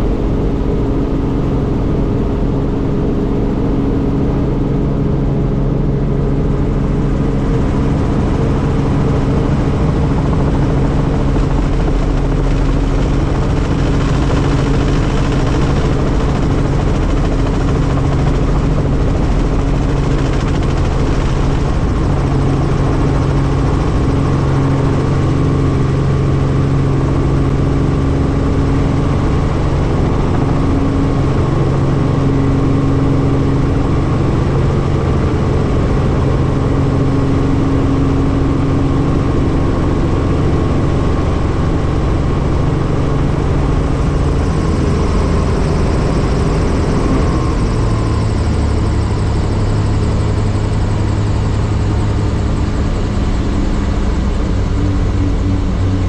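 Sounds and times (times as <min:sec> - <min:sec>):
helicopter engine and rotors: 0:00.0 - 0:56.0.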